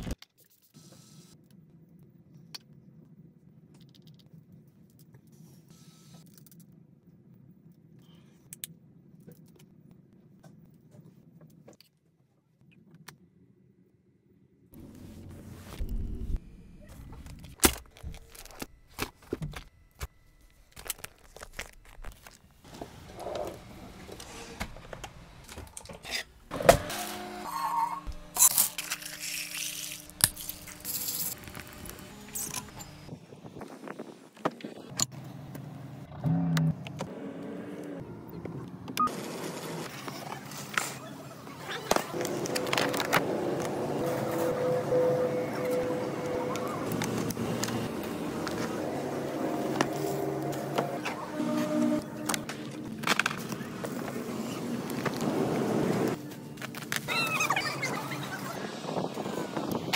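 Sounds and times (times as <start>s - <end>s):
packaging rustle: 20.4s - 22.6s.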